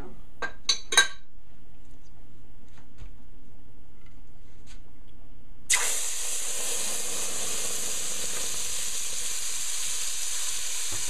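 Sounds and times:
curry paste sizzling in hot oil: 5.7s - 11.0s.

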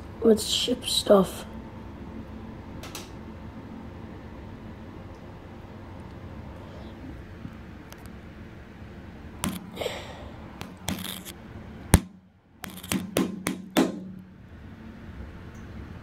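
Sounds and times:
steady low hum: 0.0s - 16.0s
phone handling knocks and scrapes: 9.4s - 9.8s, 10.6s - 11.3s, 12.0s - 14.2s.

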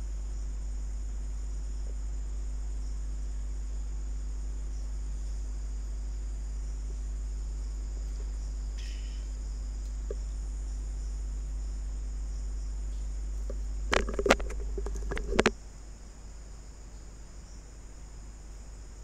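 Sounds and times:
high-pitched hiss: 0.0s - 19.0s
low electrical hum: 0.0s - 19.0s
knocks and clatter: 13.9s - 15.5s.

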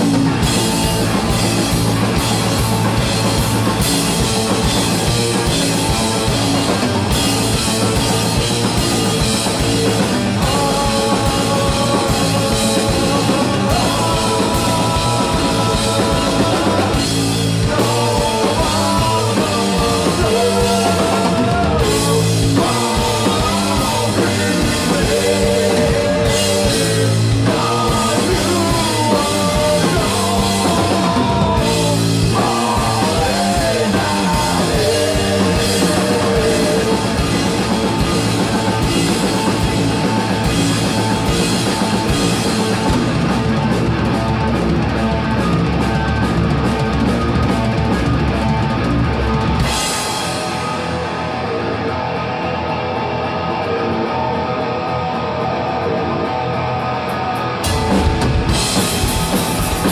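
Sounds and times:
drum kit: 0.0s - 59.9s
electric guitar: 0.0s - 59.9s
person singing: 10.3s - 37.8s.

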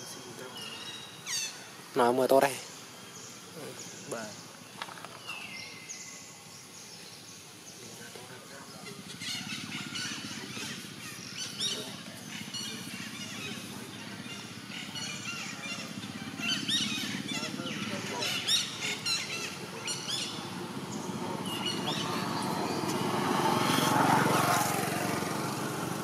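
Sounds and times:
birds chirping: 0.0s - 26.0s
low background murmur: 7.6s - 24.3s.

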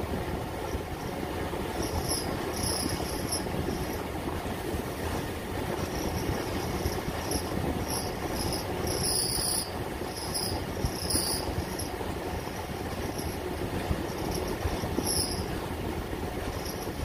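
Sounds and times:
short high-pitched squeals: 1.8s - 4.0s, 5.8s - 13.4s, 14.1s - 15.6s.

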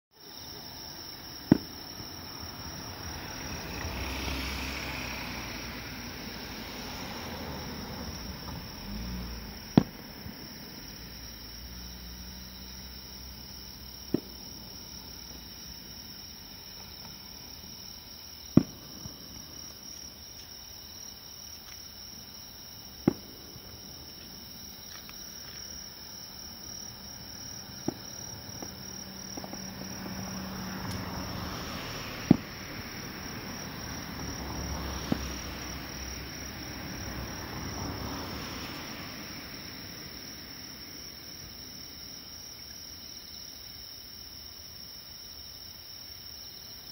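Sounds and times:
high insect trill: 0.2s - 46.9s
distant firework booms: 1.4s - 2.3s, 9.5s - 10.7s, 14.0s - 15.4s, 18.5s - 20.1s, 22.9s - 24.5s, 31.6s - 32.9s.

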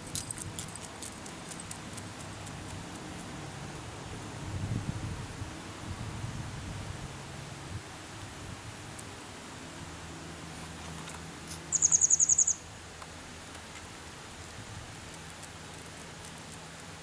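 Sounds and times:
faint outdoor hiss: 0.0s - 17.0s
small bird trilling: 11.7s - 12.6s.

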